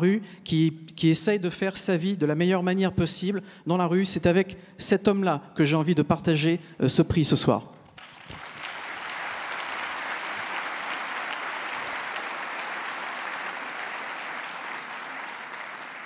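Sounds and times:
audience applauding: 0:08.0 - 0:16.0.

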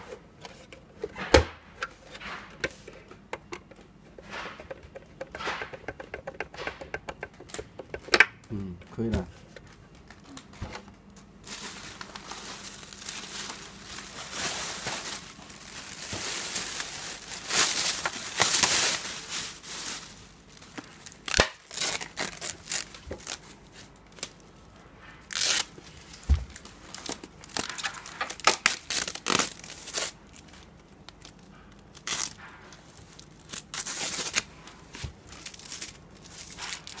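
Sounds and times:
foam and plastic wrap rustling: 0:11.3 - 0:37.0.

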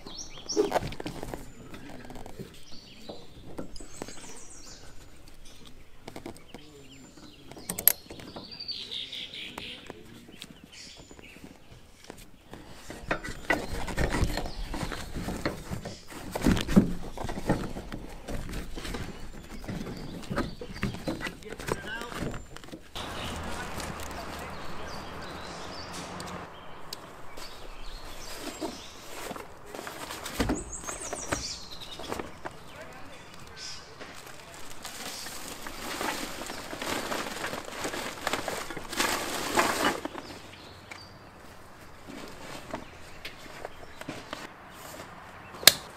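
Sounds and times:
plastic bag rustling: 0:13.6 - 0:40.6.

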